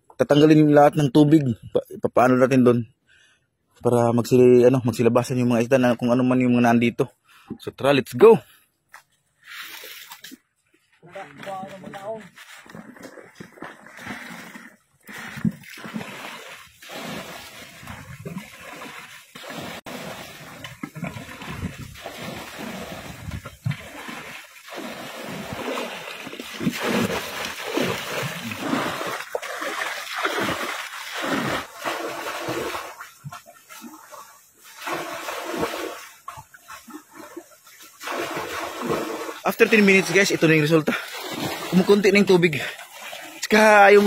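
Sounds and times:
water splashing and pouring from buckets: 9.4 - 10.4, 11.0 - 44.0.

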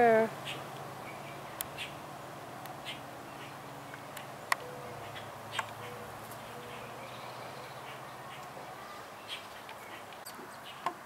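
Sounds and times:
faint bird chirps: 2.8 - 10.9.

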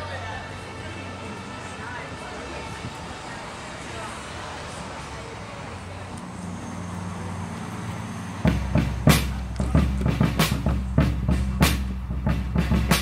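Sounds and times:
street background hum: 0.0 - 13.0
low bass: 8.4 - 13.0
snare drum hits: 8.5 - 13.0.

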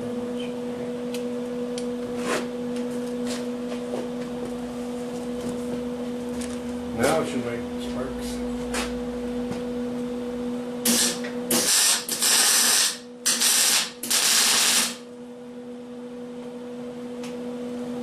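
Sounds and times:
electrical hum: 0.0 - 18.0
welding hissing crackle: 10.8 - 15.0.

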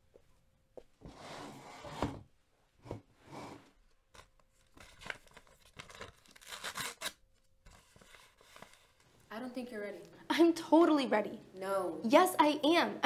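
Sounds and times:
paper envelope rustling and tearing: 4.1 - 9.0.

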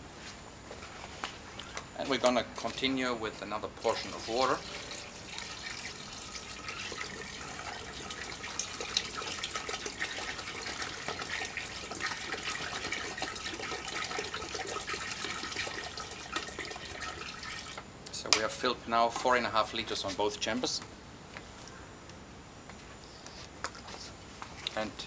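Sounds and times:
water pouring and splashing: 3.7 - 17.8.

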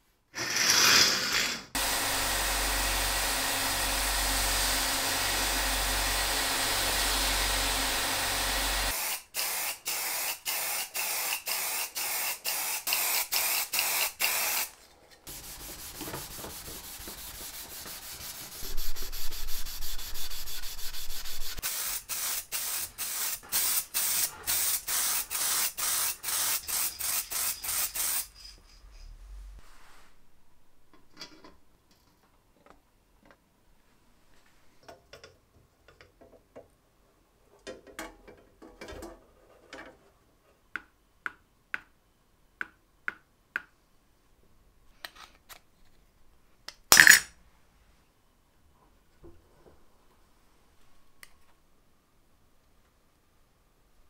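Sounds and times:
spray paint cans spraying: 8.8 - 28.6
steady hiss: 8.8 - 30.4.

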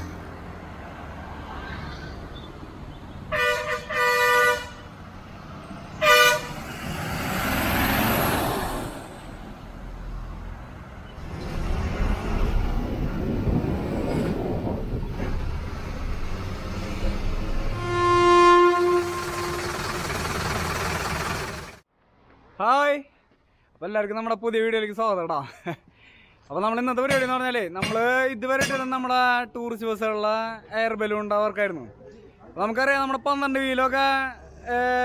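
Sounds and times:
vehicles driving past: 0.0 - 22.6, 33.4 - 35.0
vehicle horns honking: 3.2 - 4.9, 6.0 - 6.7, 17.7 - 20.2
held horn-like tone: 3.3 - 4.9, 6.0 - 6.7, 17.7 - 20.2.

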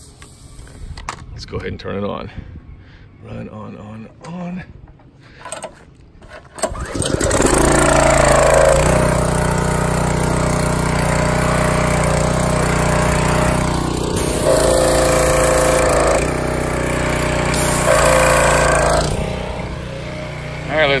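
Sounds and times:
small gas engine running: 6.6 - 21.0
higher tone: 11.6 - 21.0.

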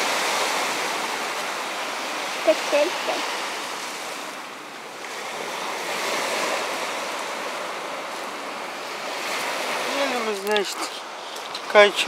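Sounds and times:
waves washing over shingle: 0.0 - 12.0.

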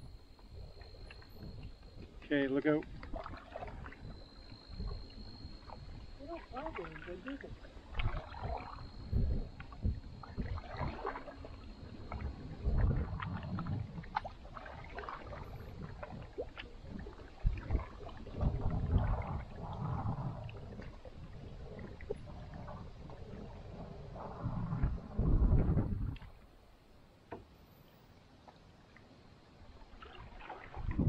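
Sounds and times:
canoe paddles splashing water: 0.0 - 26.6, 29.6 - 31.0
water dripping: 0.1 - 9.0.

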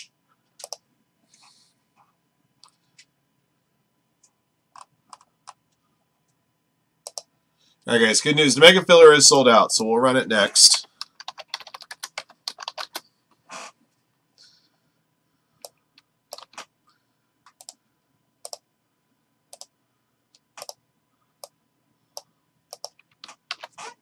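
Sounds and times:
keyboard and mouse clicks: 0.0 - 0.8, 4.2 - 5.8, 7.0 - 7.3, 10.8 - 13.1, 15.6 - 16.7, 17.4 - 17.8, 18.4 - 18.6, 19.5 - 19.7, 20.3 - 20.8, 21.4 - 23.8.

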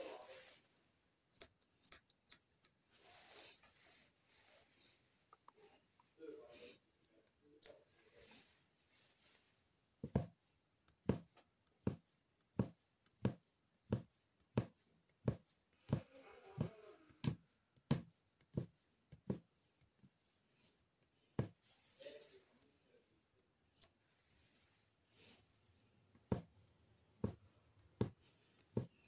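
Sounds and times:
needle punching through fabric: 10.0 - 20.2.

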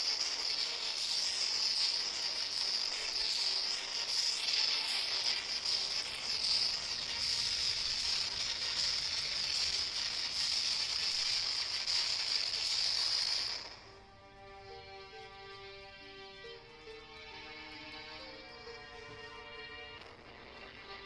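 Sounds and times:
fire hissing and crackling: 0.0 - 21.0
soft music with held notes: 13.8 - 21.0.

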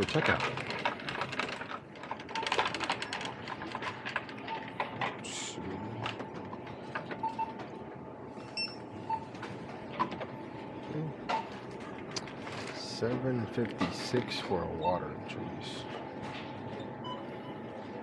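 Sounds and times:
shopping cart rattling: 0.0 - 4.4
faint hum: 1.6 - 18.0.

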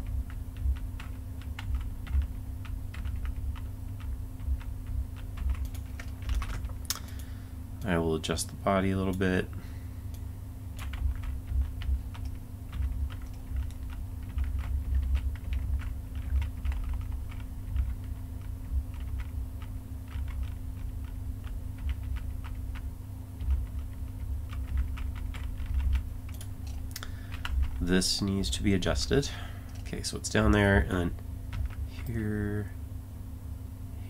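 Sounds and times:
computer keyboard keys clicking: 0.0 - 8.0, 10.8 - 27.9
steady low hum: 0.0 - 34.0.

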